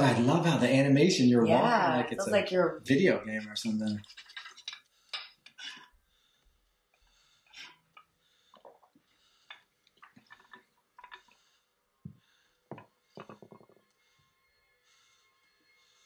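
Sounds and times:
sipping through a straw: 5.5s - 5.9s, 7.5s - 7.9s.

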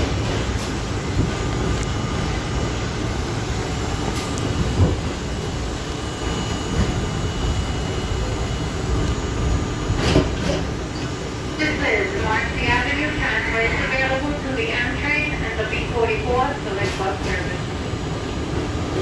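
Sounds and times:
subway wheels rumbling: 0.0s - 19.0s
sharp knocks from train car: 10.0s - 10.7s.

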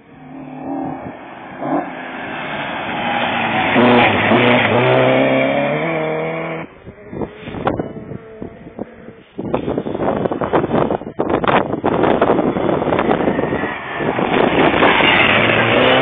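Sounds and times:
rally car accelerating past: 0.1s - 6.7s, 12.3s - 16.0s
wind gusts on microphone: 0.1s - 16.0s.

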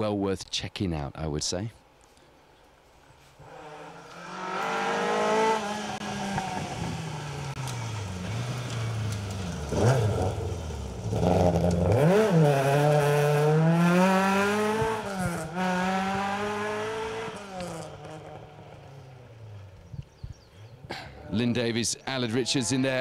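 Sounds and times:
gravel crackling under tyres: 0.6s - 23.0s
rally car engine revving: 3.4s - 19.7s.

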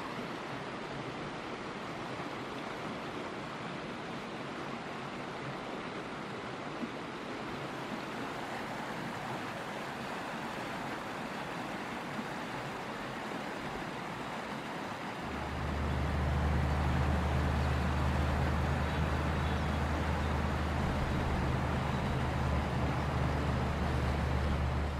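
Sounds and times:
river rapids rushing: 7.7s - 24.9s
loud low hum: 15.3s - 24.9s.

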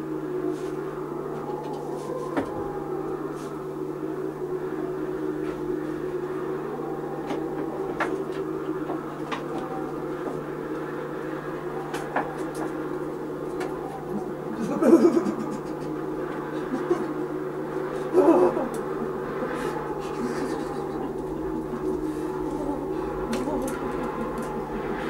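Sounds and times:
steady hum: 0.0s - 25.0s.

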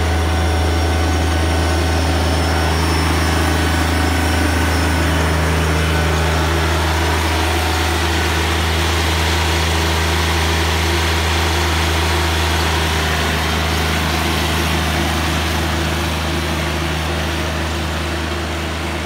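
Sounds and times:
mower engine running: 0.0s - 19.0s.

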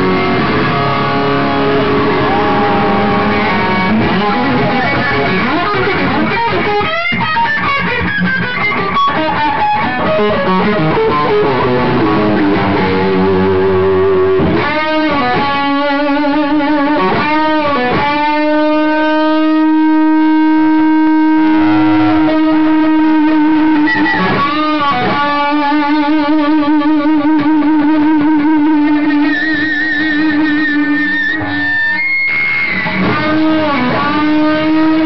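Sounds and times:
distorted electric guitar solo: 0.0s - 35.0s.

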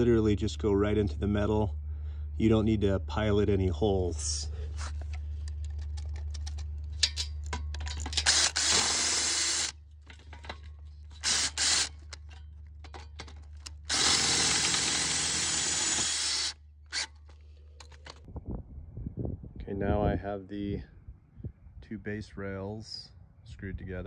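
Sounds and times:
cordless drill driving screws into steel: 7.9s - 9.8s, 11.1s - 12.3s, 13.6s - 18.2s.

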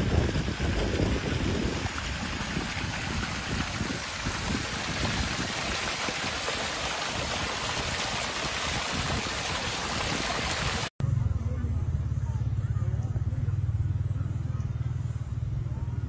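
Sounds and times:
stream water running: 0.0s - 10.9s.

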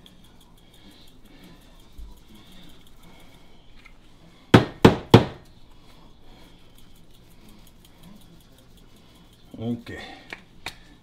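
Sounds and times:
shaker bottle knocking on surface: 4.6s - 5.4s.

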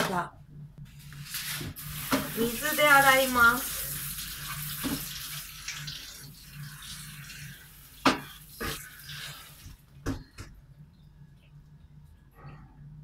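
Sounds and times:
steady low hum: 0.0s - 13.0s
tap water running into bowl: 1.9s - 7.4s.

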